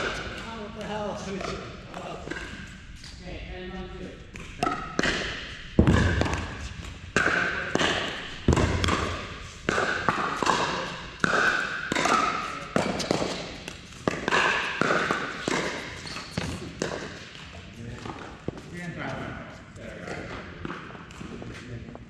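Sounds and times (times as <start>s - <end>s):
ball bouncing on court: 4.3s - 18.7s, 20.1s - 21.6s.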